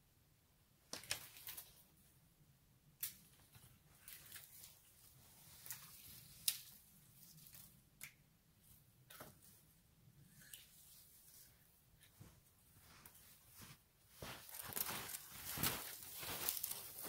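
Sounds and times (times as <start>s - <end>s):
footsteps crunching in snow: 12.2s - 17.0s.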